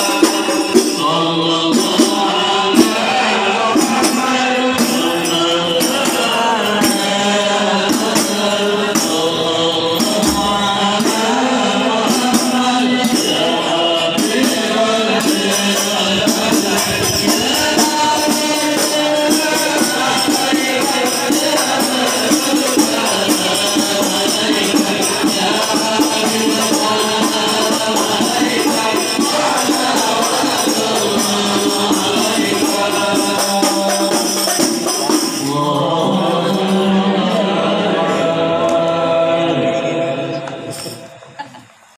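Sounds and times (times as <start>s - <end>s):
jingling tambourine percussion: 0.0s - 38.3s, 40.7s - 41.9s
group of voices chanting: 0.0s - 41.9s.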